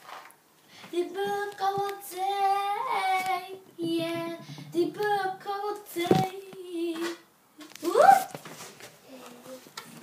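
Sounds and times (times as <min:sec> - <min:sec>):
girl singing: 0:00.8 - 0:07.3.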